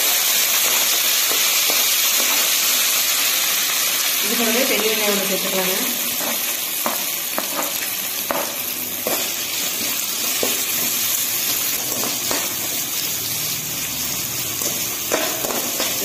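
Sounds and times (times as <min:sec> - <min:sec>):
onions sizzling in hot oil: 0:00.0 - 0:16.0
metal spatula knocking pan: 0:15.1 - 0:16.0.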